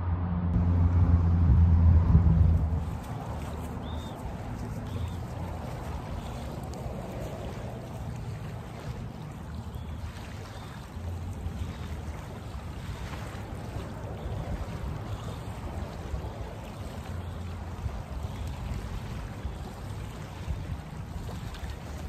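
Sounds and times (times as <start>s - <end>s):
low rumble: 0.0s - 6.2s
small waves washing onto beach: 2.5s - 22.0s.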